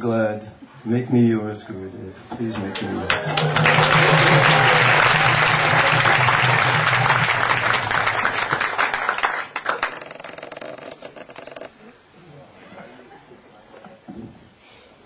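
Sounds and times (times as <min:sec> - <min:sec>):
audience applauding: 0:02.4 - 0:10.9.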